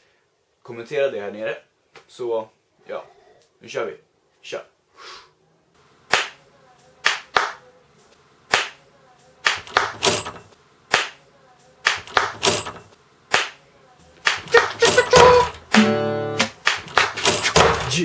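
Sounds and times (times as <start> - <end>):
sharp percussive hits: 14.2 - 18.0.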